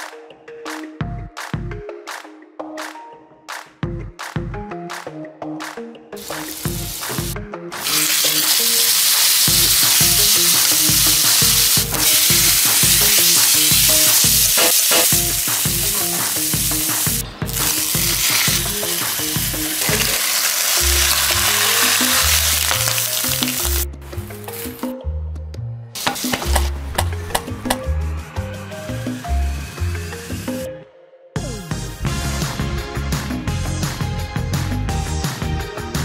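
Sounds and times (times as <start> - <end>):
meat sizzling in a frying pan: 6.2 - 23.8.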